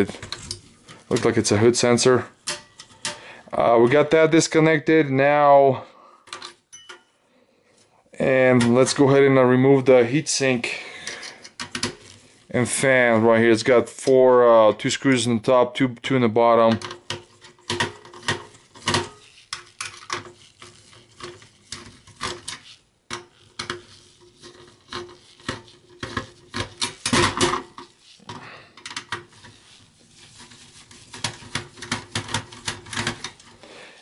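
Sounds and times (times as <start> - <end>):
screwdriver clicking and scraping: 2.4 - 3.3, 11.0 - 12.2, 16.8 - 33.6.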